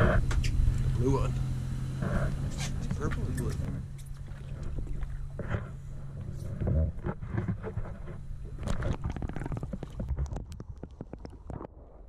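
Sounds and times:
low rumbling noise: 0.0 - 12.0
muffled underwater sound: 2.0 - 12.0
sharp clicks underwater: 6.2 - 12.0.

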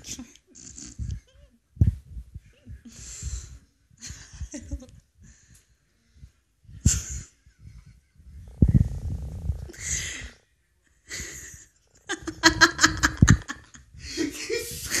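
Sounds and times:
man laughing: 12.1 - 15.0.

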